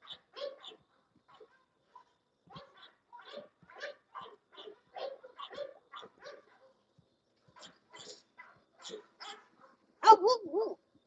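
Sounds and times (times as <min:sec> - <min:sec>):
dogs huffing and barking: 0:00.0 - 0:10.8.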